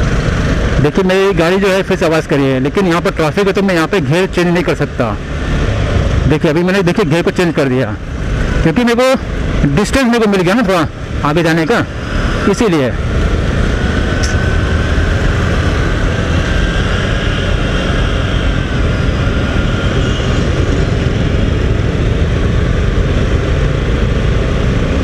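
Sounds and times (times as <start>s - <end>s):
motorcycle engine running: 0.0s - 25.0s
wind noise: 5.0s - 25.0s.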